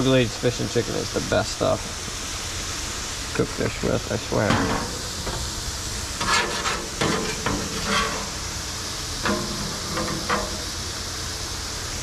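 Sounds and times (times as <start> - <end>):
fish fillets sizzling in oil: 0.0 - 12.0
metal spatula scraping griddle: 4.4 - 11.0.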